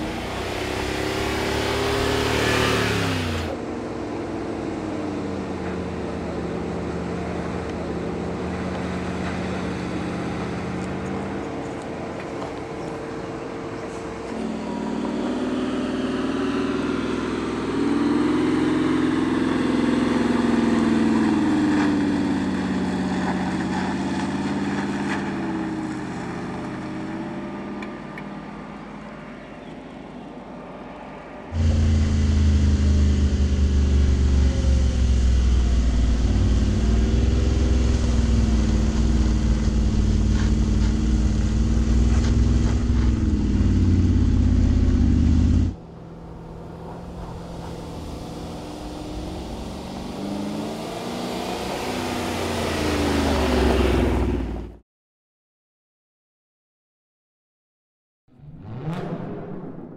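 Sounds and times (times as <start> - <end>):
deep engine rumble close up: 0.0 - 17.8, 31.4 - 50.9
suv engine working under load: 31.6 - 45.8.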